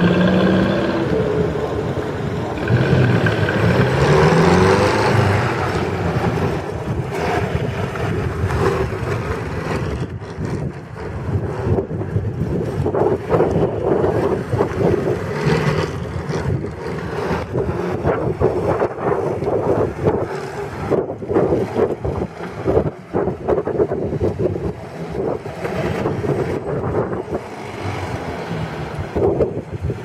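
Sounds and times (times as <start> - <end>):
sports car engine revving: 0.0 - 9.1
wind buffeting microphone: 0.0 - 30.0.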